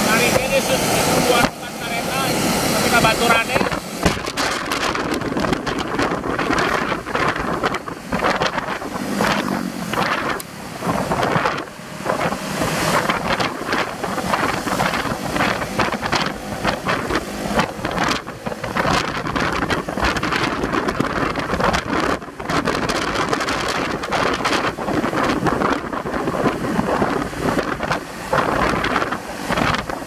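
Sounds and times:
loud steady rushing noise: 0.0 - 30.0
wind buffeting microphone: 0.0 - 30.0.

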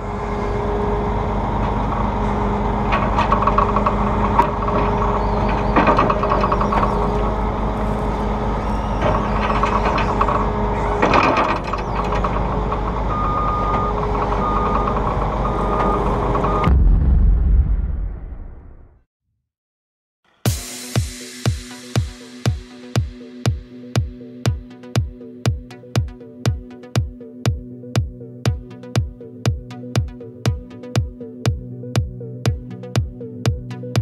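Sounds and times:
combine harvester running: 0.0 - 16.8
deep rumble: 0.0 - 19.1
machinery rattles and clicks: 1.3 - 16.7
high beeping alarm: 4.4 - 16.7.

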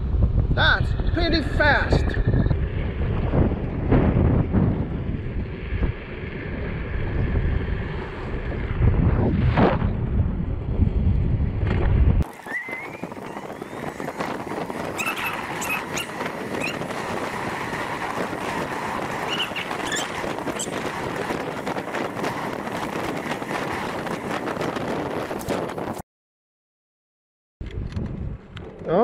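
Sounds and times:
road noise: 0.0 - 26.0
wind buffeting microphone: 0.0 - 26.0, 27.6 - 29.0
short high squeaks: 12.3 - 13.9, 14.9 - 16.8, 19.2 - 20.8.

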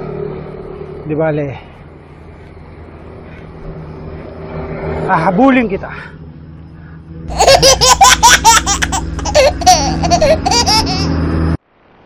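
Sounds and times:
steady low hum: 0.0 - 12.0
high-pitched laughter: 7.3 - 11.2.

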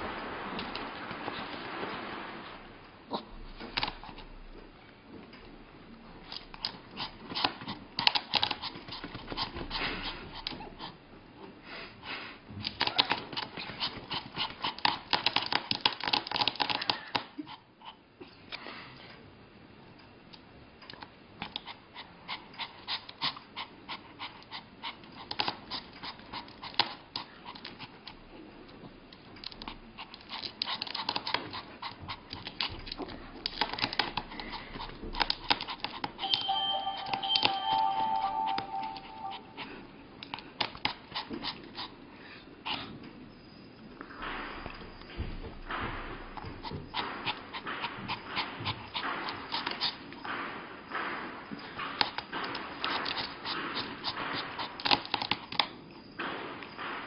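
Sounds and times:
dog panting: 6.2 - 12.4, 13.0 - 18.1, 21.4 - 28.2, 29.4 - 36.3, 45.8 - 55.4.

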